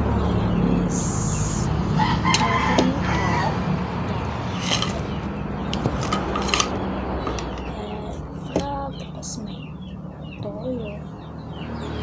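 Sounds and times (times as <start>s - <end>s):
rooster crowing: 1.9s - 3.8s.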